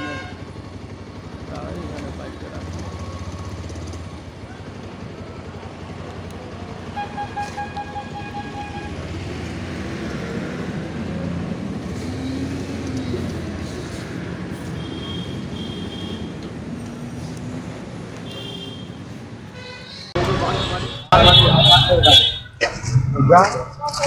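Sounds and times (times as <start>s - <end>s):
vehicle horn: 0.0s - 0.5s, 6.9s - 9.1s, 14.6s - 16.4s, 18.2s - 22.6s
street traffic noise: 0.0s - 24.0s
motorbike engine running: 0.1s - 11.1s.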